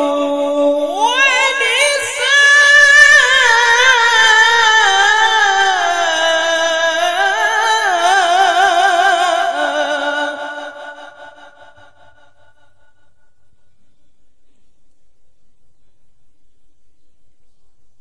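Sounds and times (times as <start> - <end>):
man reciting melodically: 0.0 - 12.4.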